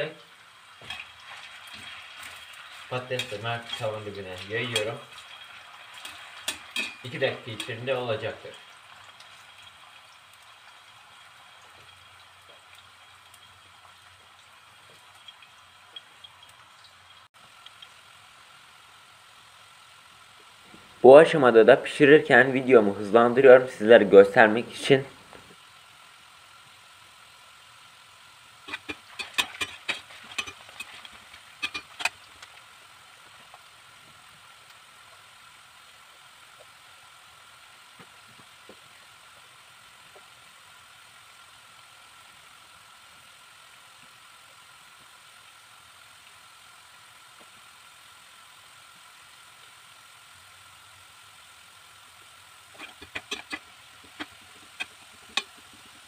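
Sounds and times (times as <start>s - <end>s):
potatoes sizzling in oil: 0.0s - 56.0s
utensil clicking against pan: 6.0s - 7.0s, 28.7s - 32.6s, 52.7s - 55.8s.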